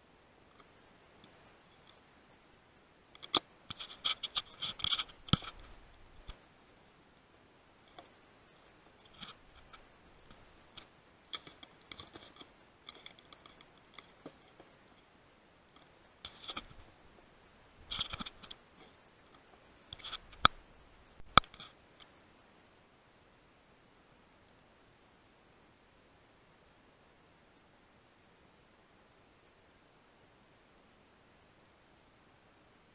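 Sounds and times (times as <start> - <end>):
equipment scratching and rubbing: 3.2 - 6.4, 16.2 - 16.8, 17.8 - 19.0, 19.9 - 20.5.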